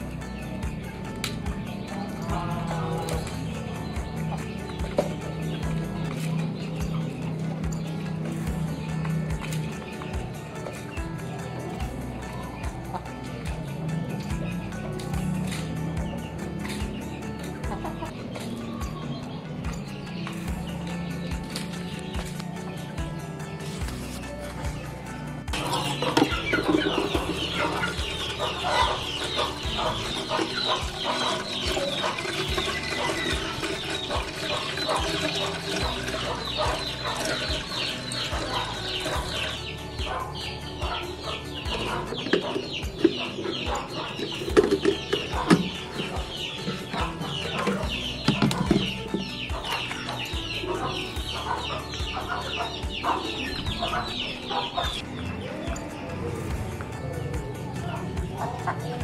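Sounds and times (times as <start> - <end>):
chicks peeping: 0.0 - 11.3, 12.6 - 59.0
hens clucking: 12.7 - 57.1, 57.8 - 59.0.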